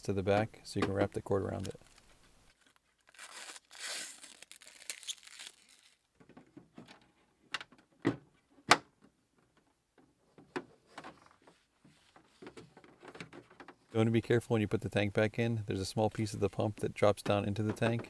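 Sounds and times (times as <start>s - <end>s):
packaging crinkling and tearing: 1.6s - 6.1s.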